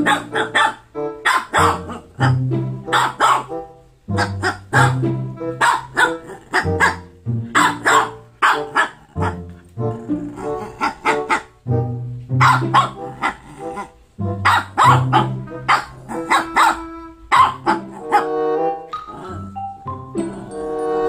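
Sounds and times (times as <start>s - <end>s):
small dog barking: 0.0s - 5.0s, 5.6s - 11.6s, 12.4s - 18.3s
background music with mallet percussion: 18.8s - 21.0s.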